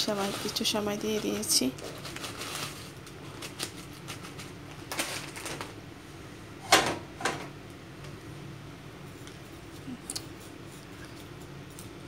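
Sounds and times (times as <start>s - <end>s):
foil packet rustling: 0.0s - 5.8s.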